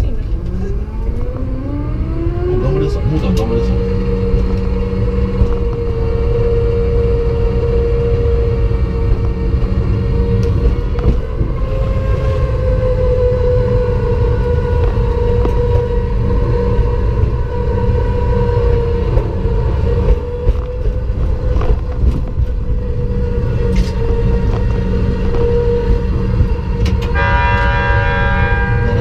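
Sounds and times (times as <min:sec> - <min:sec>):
miniature train running on track: 0:14.1 - 0:29.0
steady pitched tone: 0:27.1 - 0:29.0.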